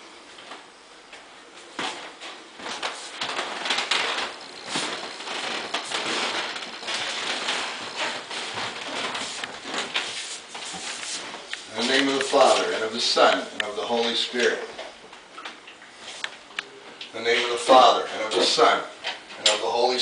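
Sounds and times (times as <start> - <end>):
shuffling footsteps: 0.3 - 14.2
clothing rustle: 1.7 - 13.3.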